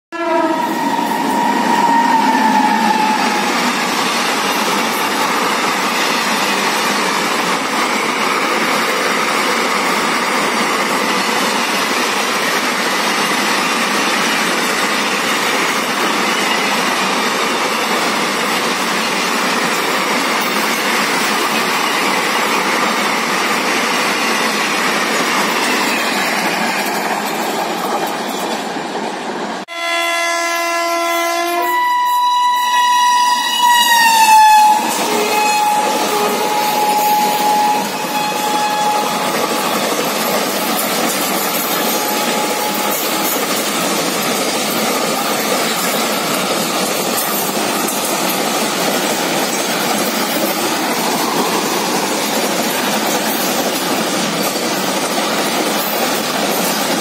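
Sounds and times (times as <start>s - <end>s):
train horn: 0.1s - 3.9s, 29.7s - 39.7s, 41.8s - 43.4s
wagon wheels rushing on rails: 0.7s - 29.0s, 33.8s - 57.0s.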